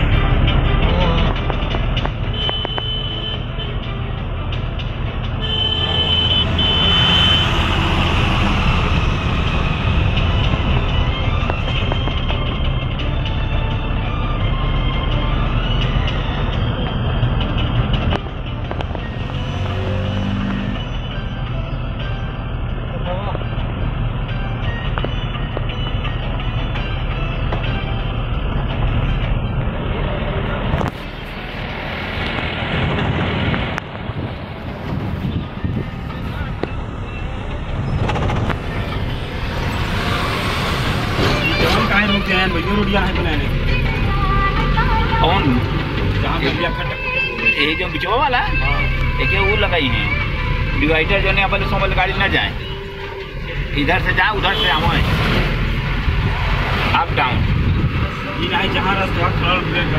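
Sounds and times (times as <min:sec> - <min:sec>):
truck engine and road noise: 0:00.0 - 0:59.9
truck horn blasts: 0:02.2 - 0:03.8, 0:05.4 - 0:09.0.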